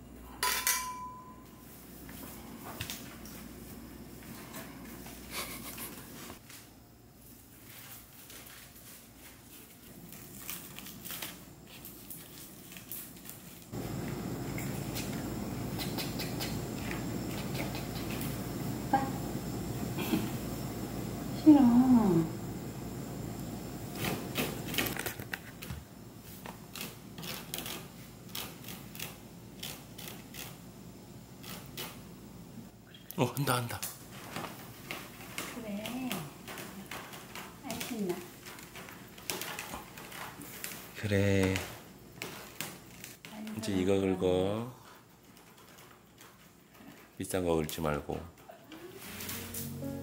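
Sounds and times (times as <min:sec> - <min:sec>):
rustling and scraping of pad: 0:01.6 - 0:14.1, 0:48.8 - 0:49.9
fingernails scratching rope: 0:26.7 - 0:30.6
hook-and-loop straps crackling: 0:42.2 - 0:43.6.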